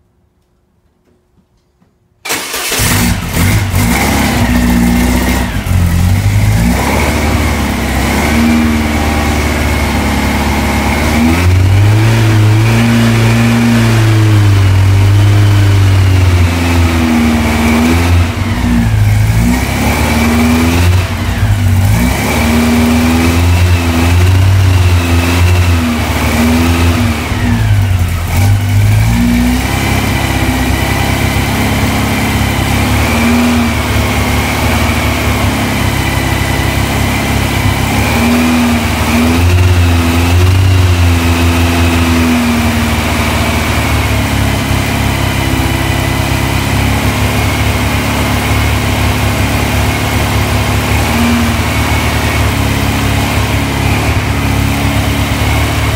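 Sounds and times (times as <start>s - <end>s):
car engine revving: 2.3s - 55.9s.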